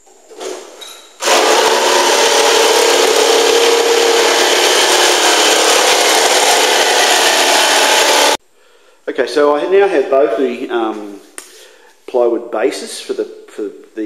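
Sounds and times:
jigsaw cutting plywood: 1.2 - 8.4.

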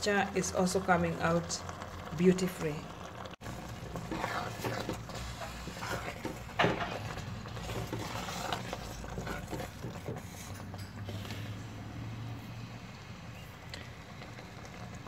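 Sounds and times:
wooden spoon scraping metal pot: 3.4 - 11.7.

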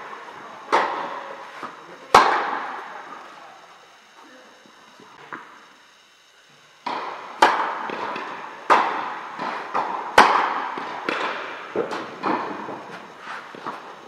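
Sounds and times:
tennis ball struck by rackets: 2.1 - 2.8, 6.8 - 12.8
tennis ball bouncing on court: 6.8 - 12.8.

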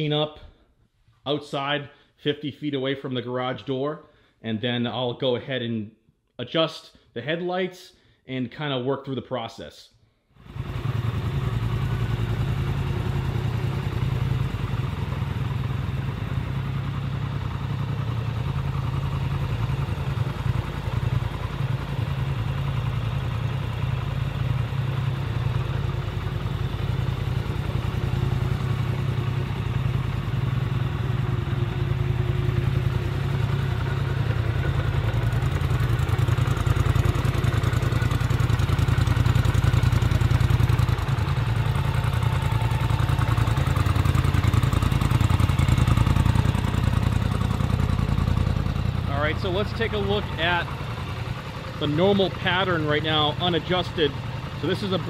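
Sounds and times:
atv engine idling: 10.4 - 55.0.

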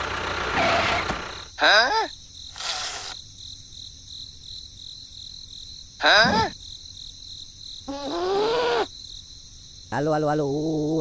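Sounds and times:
crickets trilling: 0.8 - 11.0.

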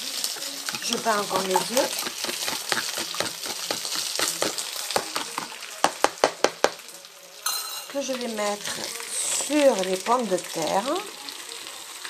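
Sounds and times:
potatoes sizzling in butter: 0.0 - 12.0
fork beating eggs in container: 0.7 - 6.6.

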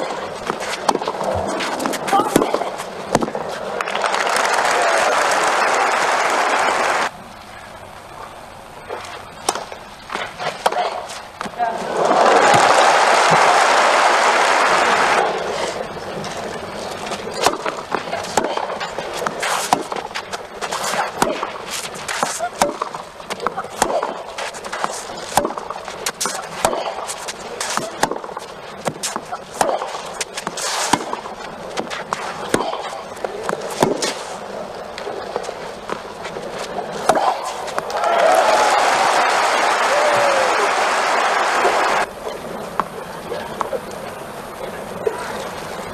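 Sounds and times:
racket striking tennis ball: 0.0 - 4.0, 8.9 - 13.4, 17.1 - 34.3, 36.8 - 38.0
tennis ball bouncing: 0.0 - 4.2, 8.9 - 13.4, 15.4 - 34.3, 34.9 - 38.0
crowd hum: 0.0 - 45.9
crowd applause: 3.7 - 7.1, 11.8 - 16.0, 37.8 - 42.1.

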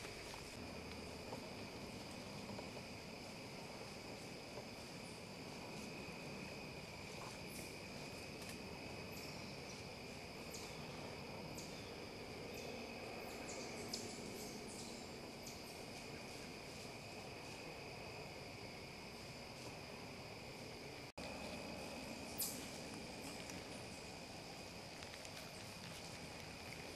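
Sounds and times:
crickets chorus: 0.0 - 26.9
small ticks and chirps: 7.1 - 11.9, 21.2 - 26.9.

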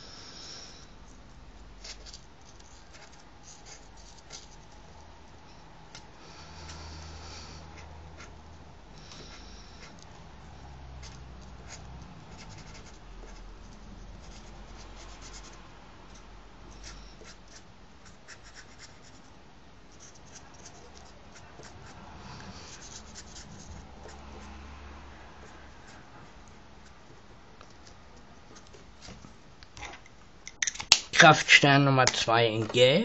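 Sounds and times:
highlighter scratching on paper: 2.7 - 4.8, 6.6 - 8.4, 11.0 - 19.3, 19.9 - 24.6.

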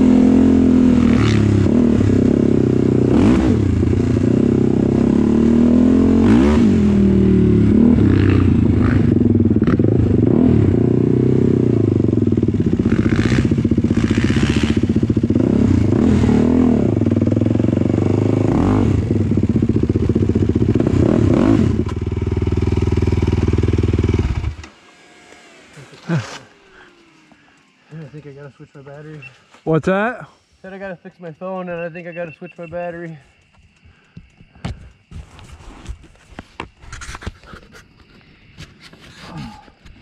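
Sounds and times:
atv engine revving: 0.0 - 29.4.

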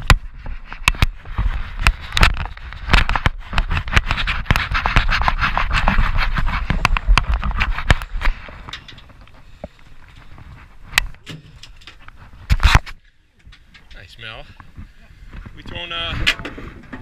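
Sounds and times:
arm rubbing against camera: 0.1 - 9.4.

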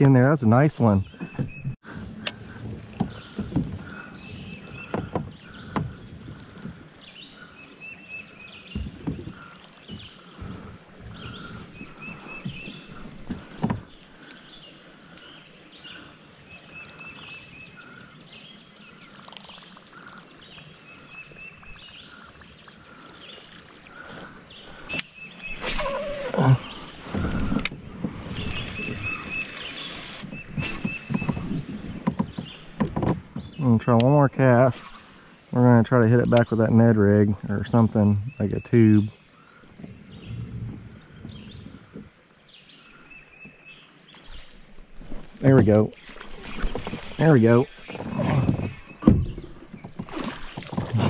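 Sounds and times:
birds calling: 0.0 - 51.0
water and kayak hull noise: 0.0 - 51.0.

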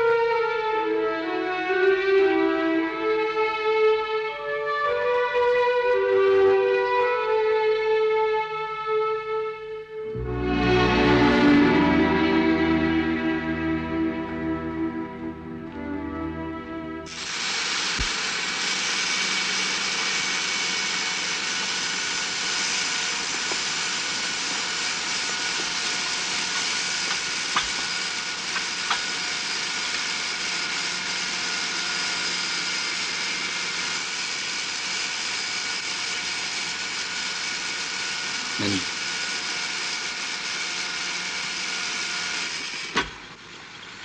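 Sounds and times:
workshop machinery droning: 10.0 - 43.9.

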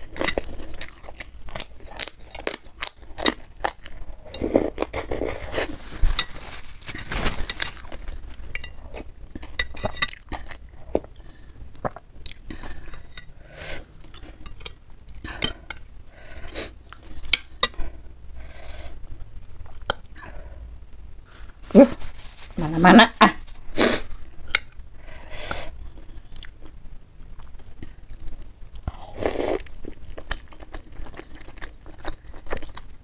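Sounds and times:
chewing: 25.8 - 33.0.

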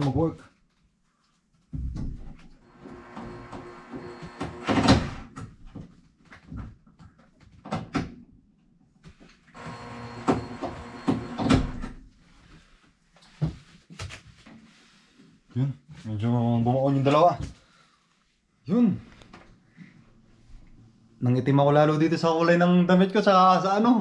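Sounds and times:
cordless drill running: 2.6 - 5.1, 9.6 - 11.8.

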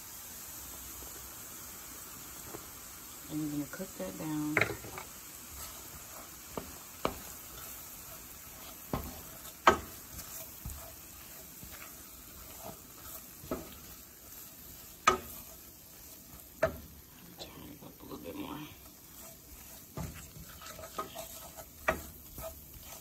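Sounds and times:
roux sizzling in a pan: 0.0 - 23.0
wooden spoon stirring: 3.3 - 23.0
spoon knocking against pan: 4.5 - 5.0, 8.8 - 10.9, 14.9 - 15.6, 16.5 - 17.0, 19.8 - 23.0.

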